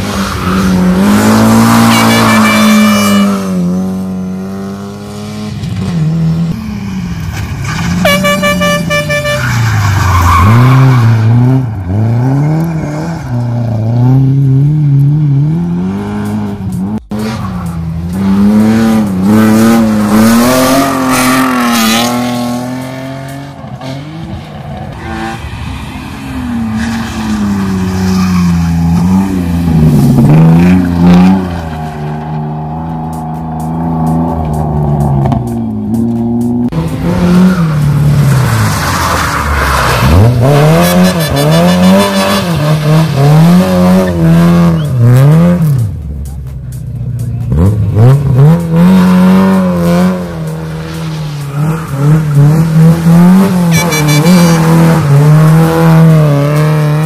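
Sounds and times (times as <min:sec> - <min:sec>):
rally car engines revving: 0:00.0 - 0:57.0
car horn: 0:01.5 - 0:03.6, 0:08.0 - 0:09.7, 0:24.9 - 0:25.5, 0:53.3 - 0:55.0.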